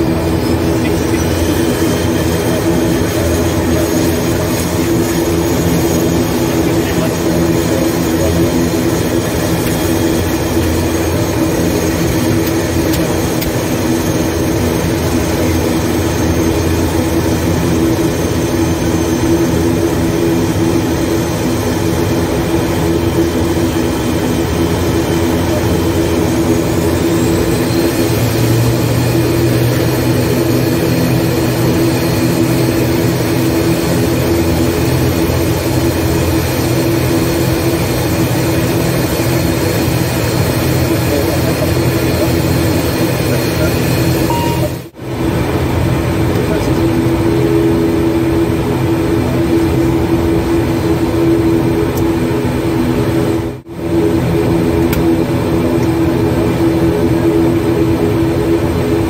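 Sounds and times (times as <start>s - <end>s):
turboprop engines droning: 0.0s - 59.0s
deeper hum: 40.6s - 55.6s.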